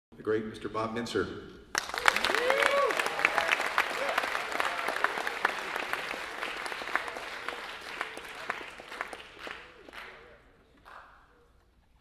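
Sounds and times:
audience applauding: 0:01.7 - 0:11.1.

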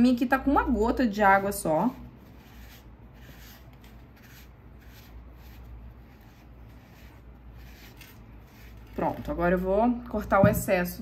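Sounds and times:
fingertip rubbing clay: 0:01.1 - 0:09.5
sponge rubbing clay bowl: 0:01.1 - 0:09.6.

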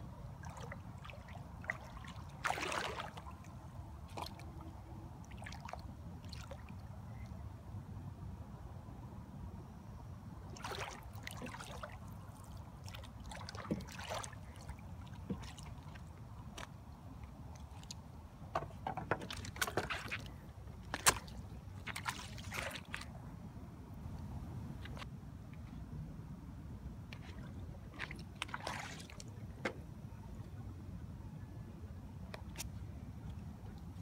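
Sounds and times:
water lapping and splashing: 0:00.0 - 0:07.2, 0:10.5 - 0:23.2, 0:27.1 - 0:29.5.

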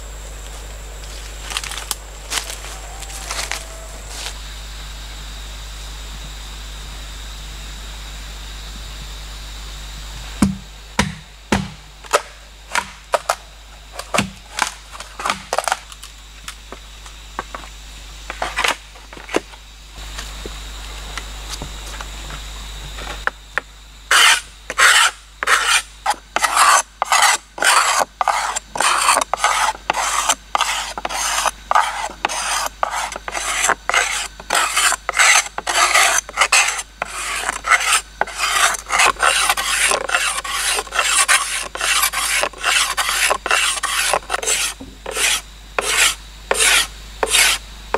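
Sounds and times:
machete scraping bamboo: 0:01.2 - 0:04.3, 0:14.0 - 0:16.1, 0:24.1 - 0:47.6.

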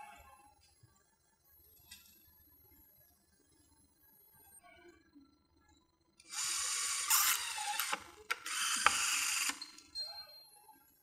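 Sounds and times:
electric screwdriver whirring: 0:06.3 - 0:09.6.

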